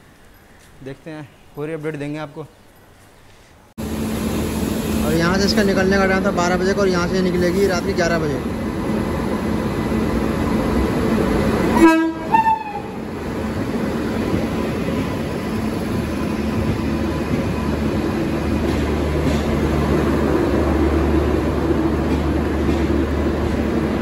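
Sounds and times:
low rumble of rail traffic: 0:00.0 - 0:24.0
train horn blast: 0:11.7 - 0:13.0
horn toot falling in pitch: 0:11.8 - 0:12.9.

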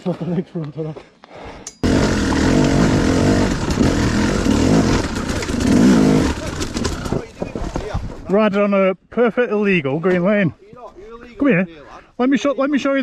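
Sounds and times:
dirt bike engine revving: 0:01.8 - 0:07.1.

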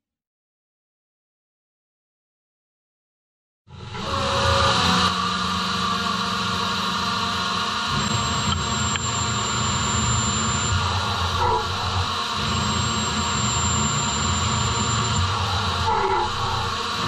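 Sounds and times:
machine spindle and cutting noise: 0:03.7 - 0:17.0
thin high whine: 0:03.7 - 0:17.0.

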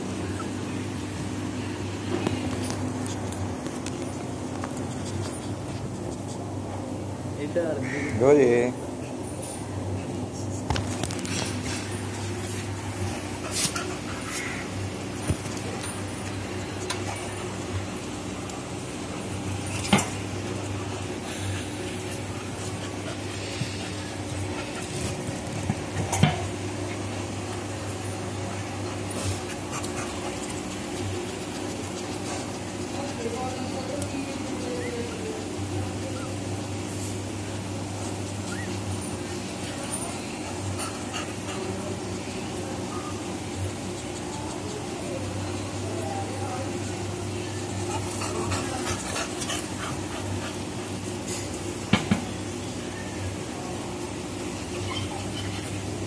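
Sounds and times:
steady low hum: 0:00.0 - 0:56.0
faint puppy sounds: 0:28.1 - 0:37.0, 0:37.6 - 0:51.0, 0:52.8 - 0:56.0.

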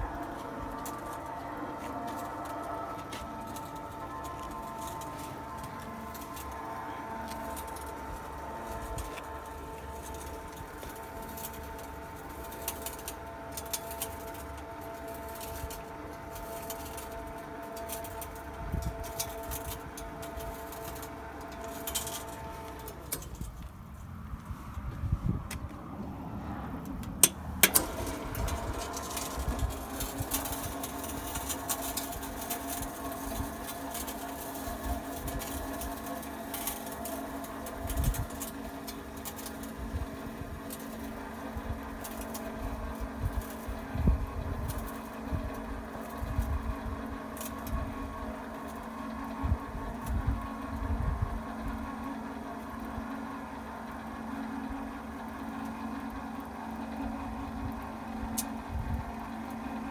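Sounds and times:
baling press motor humming: 0:00.0 - 0:59.9.

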